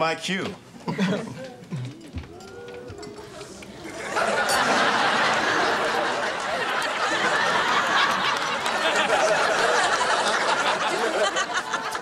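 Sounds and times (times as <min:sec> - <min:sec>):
studio audience laughing: 0:03.8 - 0:12.0.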